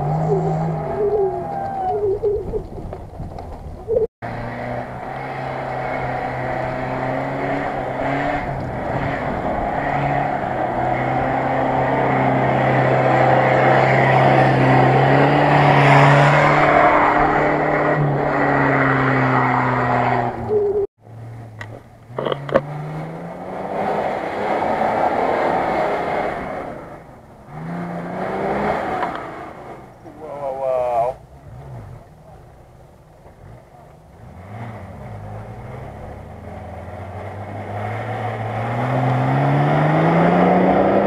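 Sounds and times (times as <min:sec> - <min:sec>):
off-road vehicle engine under load: 0:00.0 - 0:41.0.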